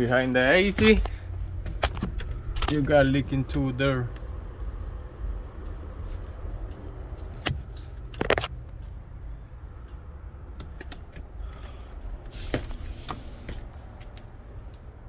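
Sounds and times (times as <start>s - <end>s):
low hum: 0.0s - 15.0s
phone being handled: 0.8s - 2.9s, 7.2s - 8.8s.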